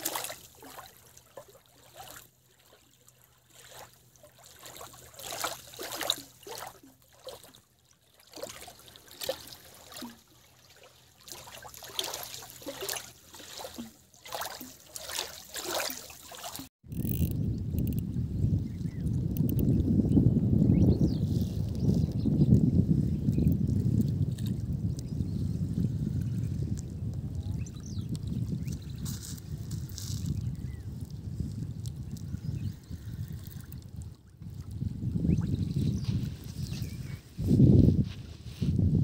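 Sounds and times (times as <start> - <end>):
small waves lapping: 0.0 - 16.7
wind rumble on microphone: 16.8 - 39.0.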